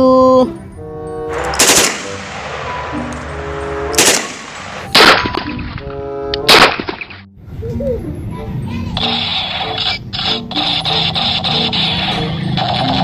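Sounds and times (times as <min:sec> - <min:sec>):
background music: 0:00.0 - 0:07.4
gunshots with ringing tail: 0:01.3 - 0:05.5, 0:06.5 - 0:07.1.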